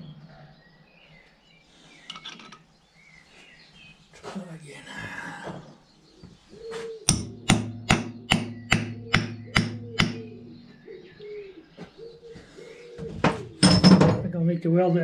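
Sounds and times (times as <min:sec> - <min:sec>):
hammer striking metal: 0:07.1 - 0:10.8.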